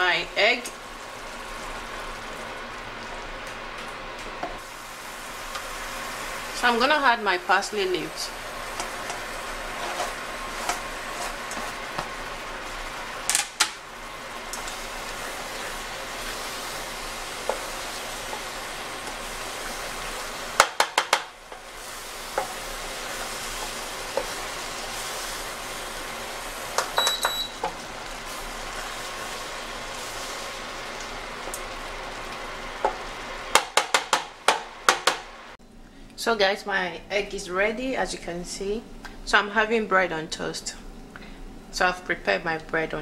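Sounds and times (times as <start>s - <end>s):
food sizzling in a pot: 0.0s - 35.6s
wooden spoon knocking a pot: 20.6s - 21.4s, 32.8s - 35.2s.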